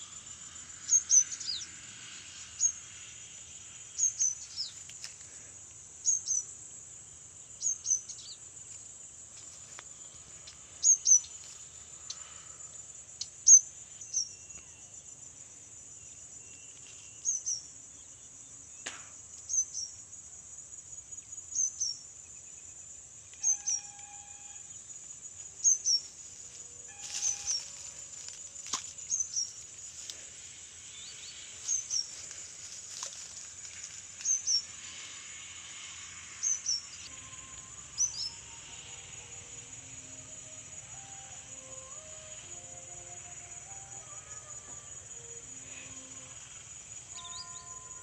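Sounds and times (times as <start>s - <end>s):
insects trilling: 0.0s - 48.0s
bird high double call: 23.4s - 24.6s, 26.9s - 27.7s.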